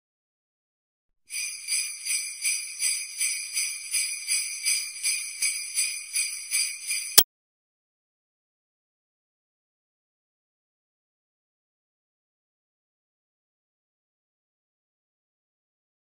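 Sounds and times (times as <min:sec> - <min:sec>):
jingle bells shaken: 0:01.3 - 0:07.2.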